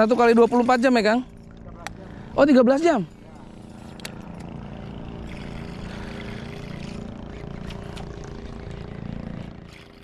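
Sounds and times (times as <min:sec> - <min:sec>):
engine droning hum: 0:00.0 - 0:10.0.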